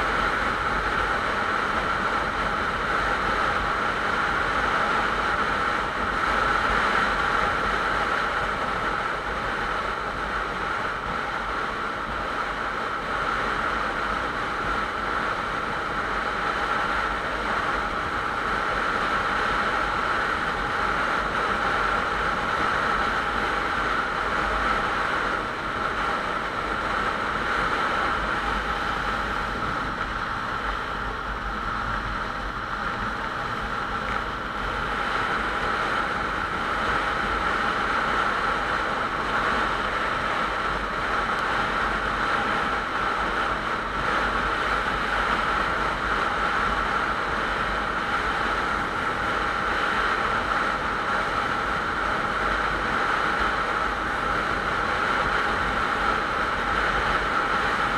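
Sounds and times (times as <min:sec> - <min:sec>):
motorcycle engine drone: 0:00.0 - 0:57.9
wind noise: 0:00.0 - 0:57.9.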